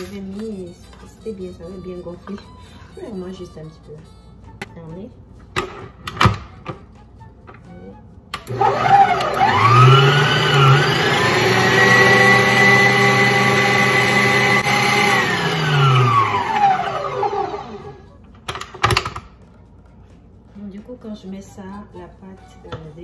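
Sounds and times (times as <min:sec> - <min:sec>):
stand mixer whisking: 0:08.5 - 0:18.0.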